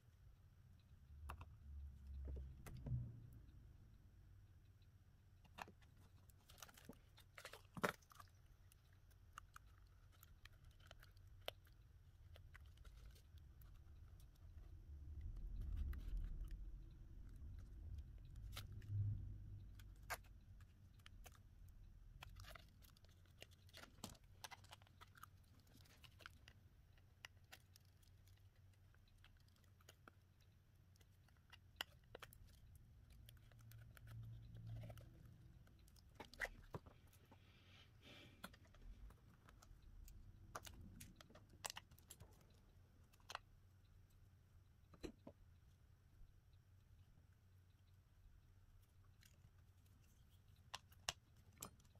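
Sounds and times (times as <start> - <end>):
low rumble: 1.1 - 4.4, 14.4 - 20.7.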